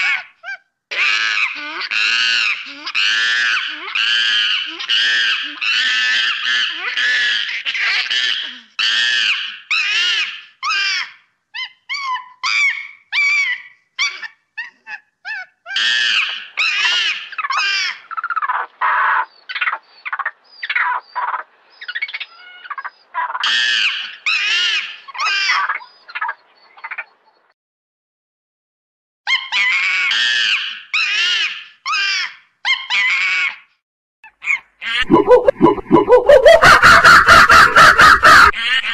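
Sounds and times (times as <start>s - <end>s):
primate shrill calls: 34.4s - 38.5s.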